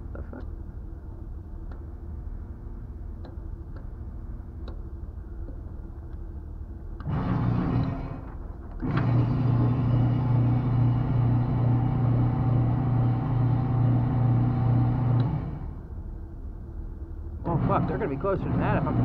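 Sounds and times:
electric motor humming: 7.0s - 15.8s, 17.4s - 19.0s.

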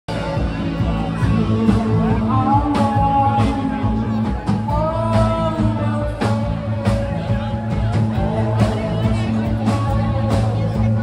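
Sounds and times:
bass line: 0.1s - 11.0s
electric guitars: 0.1s - 11.0s.

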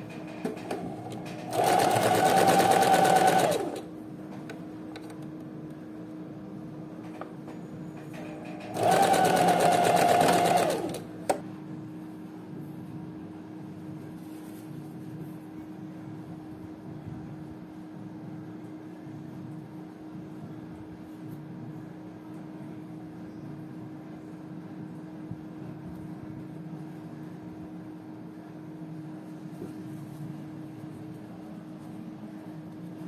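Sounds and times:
sewing machine stitching: 0.4s - 3.9s, 8.2s - 11.4s.

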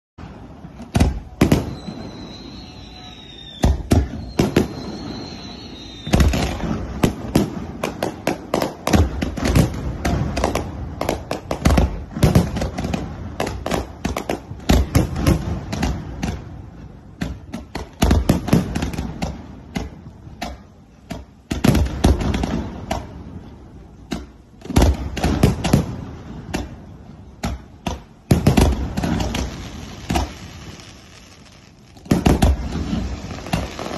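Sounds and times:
fireworks bangs: 0.2s - 20.7s, 21.4s - 33.9s
falling firework whistles: 0.3s - 8.2s, 28.4s - 33.9s.

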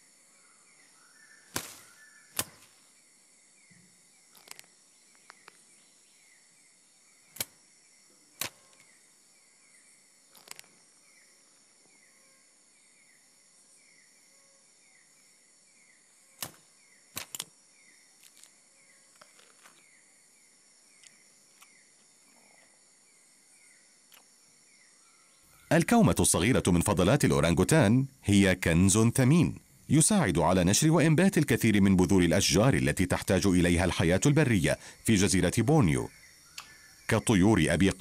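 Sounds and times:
insect chirp: 0.0s - 38.0s
insect chorus drone: 0.0s - 38.0s
sharp cracks: 1.5s - 2.8s, 16.4s - 17.5s.

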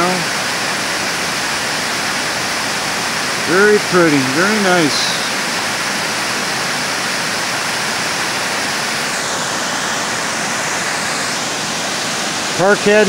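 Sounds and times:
water pouring over waterfall: 0.0s - 13.0s.

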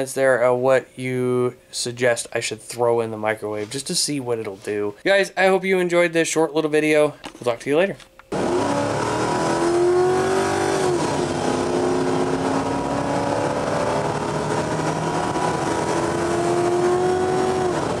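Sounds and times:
car engine revving: 8.3s - 18.0s.

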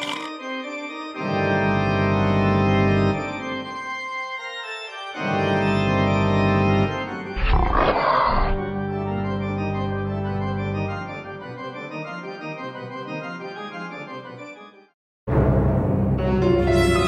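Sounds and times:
organ chords: 1.1s - 4.2s, 5.0s - 7.4s, 8.7s - 14.2s.

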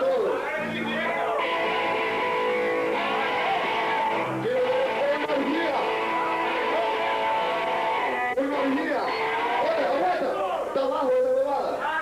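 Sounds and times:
voices shouting: 0.4s - 10.7s
distorted electric guitar chords: 0.6s - 9.8s.

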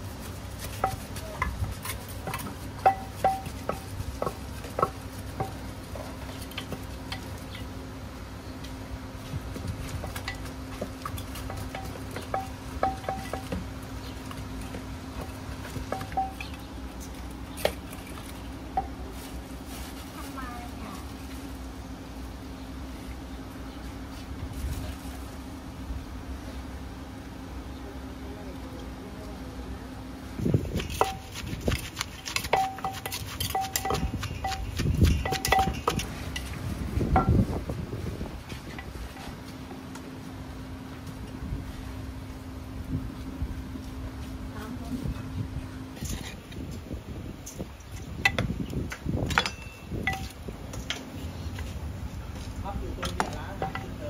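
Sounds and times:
steady low hum: 0.0s - 54.0s
utensils clinking against dishes: 15.9s - 16.7s, 30.7s - 36.6s, 49.3s - 51.0s.

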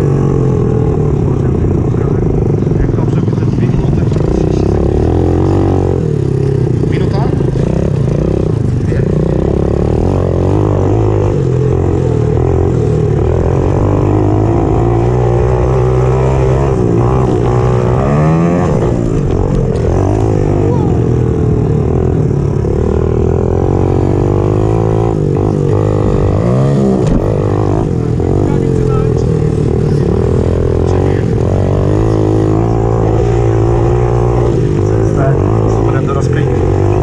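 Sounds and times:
motorbike engine revving: 0.0s - 37.0s.

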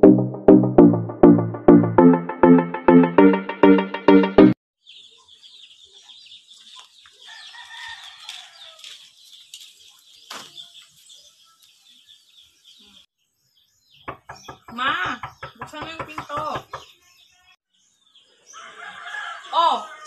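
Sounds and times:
rooster crowing: 7.2s - 9.0s, 18.5s - 20.0s.

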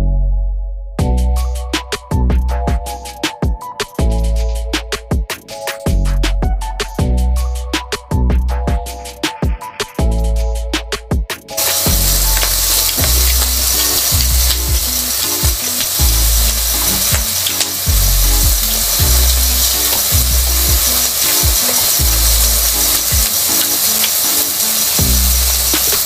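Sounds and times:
electronic music with bass: 0.0s - 26.0s
steady high hiss: 11.6s - 26.0s.

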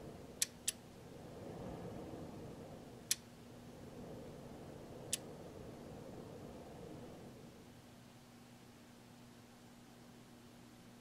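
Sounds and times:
cooling fan whoosh: 0.0s - 9.1s
sharp clicks: 0.4s - 0.8s.

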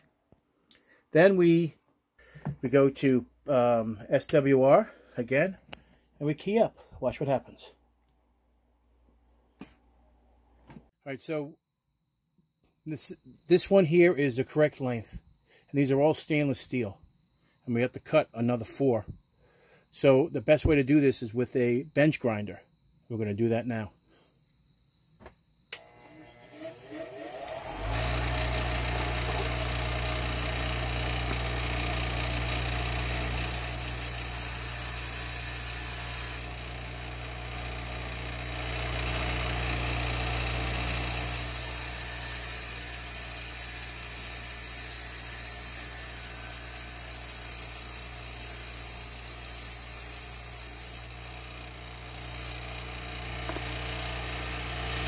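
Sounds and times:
bench grinder humming: 25.8s - 55.0s
metal grinding hiss: 41.0s - 51.0s.

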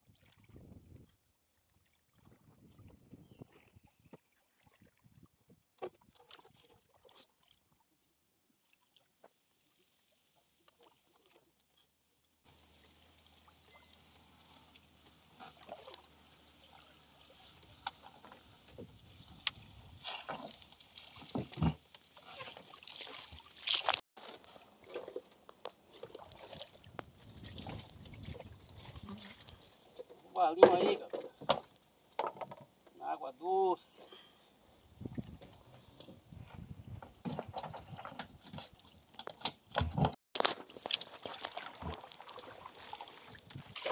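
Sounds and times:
water splashing and dripping: 12.5s - 32.6s, 37.2s - 43.9s
knocks against wooden hull: 30.6s - 32.7s.

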